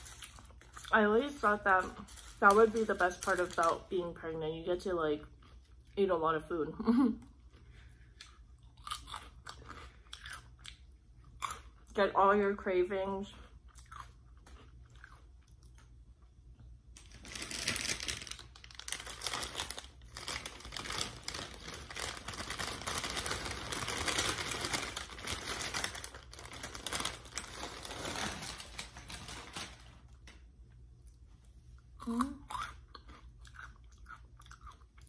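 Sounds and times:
plastic bag crinkling: 0.0s - 4.1s, 17.0s - 30.4s.

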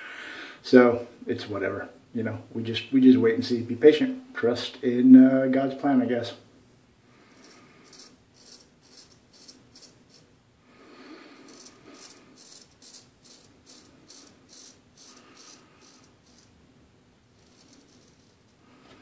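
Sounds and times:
razor scraping stubble: 7.3s - 10.3s, 11.4s - 16.6s, 17.4s - 18.6s.

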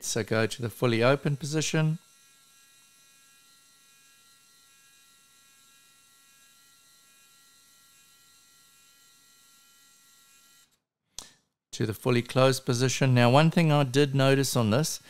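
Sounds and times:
small electric motor whine: 2.0s - 10.8s.

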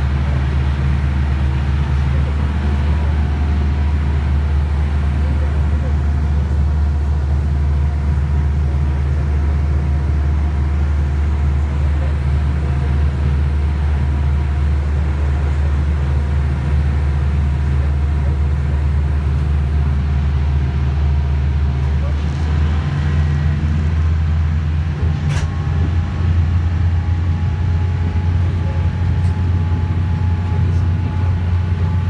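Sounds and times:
motorboat engine running: 0.0s - 32.0s.

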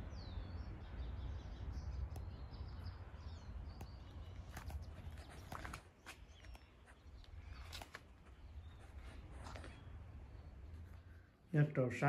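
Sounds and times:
small birds chirping: 0.0s - 12.0s
soft clicks: 2.0s - 2.5s, 3.7s - 8.4s.

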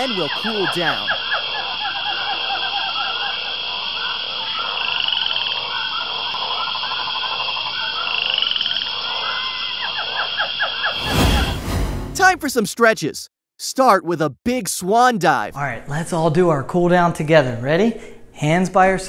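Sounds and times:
high insect drone: 0.0s - 10.9s
frogs chirping and trilling: 0.0s - 11.0s.

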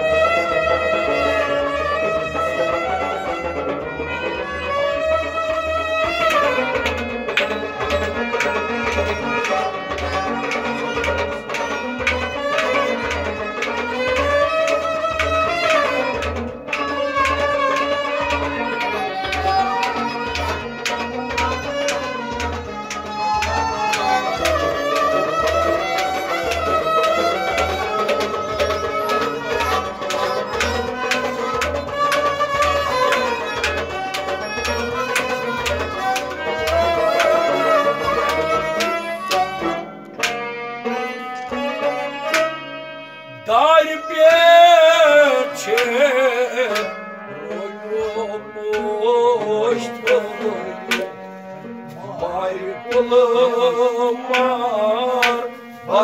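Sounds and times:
clay pot drum beat: 0.0s - 40.4s
harmonium melody: 0.0s - 56.0s
person singing: 7.4s - 22.5s, 23.2s - 39.8s, 43.3s - 51.2s, 51.9s - 56.0s.

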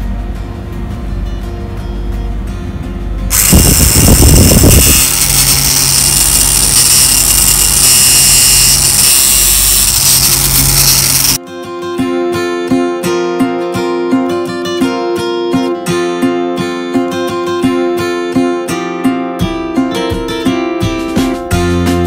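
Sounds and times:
air buffeting: 3.3s - 6.5s
small motor fan whirring: 3.3s - 11.4s.

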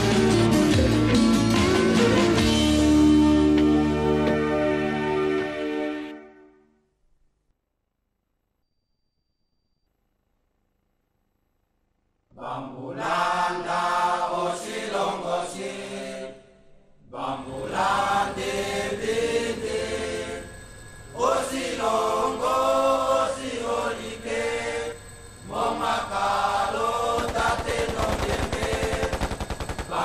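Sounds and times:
voices chanting: 12.3s - 16.4s, 17.0s - 30.0s.

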